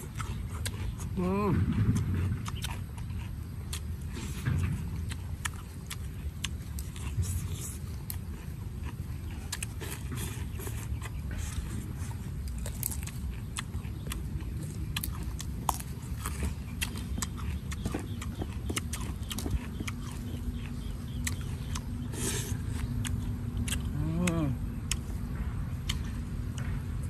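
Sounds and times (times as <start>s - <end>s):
chewing and crunching vegetables: 0.0s - 27.0s
fingers tearing food: 5.0s - 25.1s.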